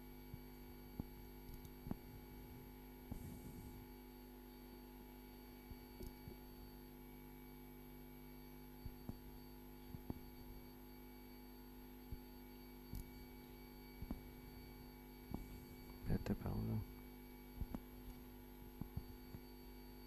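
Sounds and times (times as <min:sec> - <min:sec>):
electrical hum: 0:00.0 - 0:20.0
faint clicks: 0:01.5 - 0:01.8.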